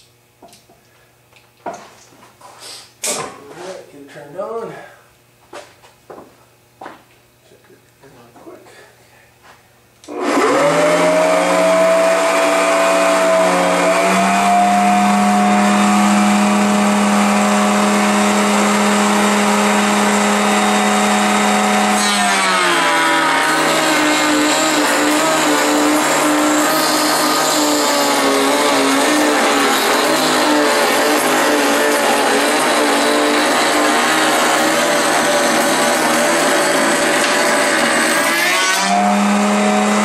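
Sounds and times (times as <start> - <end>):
router high whine: 10.0 - 40.0
router cutting wood: 10.1 - 40.0.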